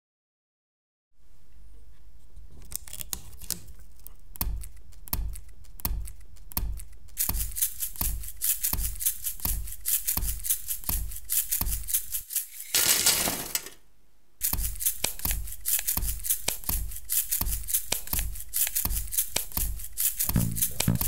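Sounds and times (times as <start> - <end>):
paper clips rattling in container: 7.2 - 13.8, 14.4 - 21.0
tape dispenser clicks and thumps: 7.2 - 13.8.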